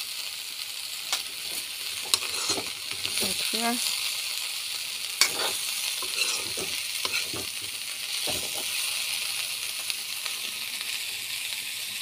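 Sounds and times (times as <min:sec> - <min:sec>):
vegetables sizzling in oil: 0:00.0 - 0:12.0
utensil scraping against pan: 0:01.4 - 0:03.4, 0:05.2 - 0:08.8.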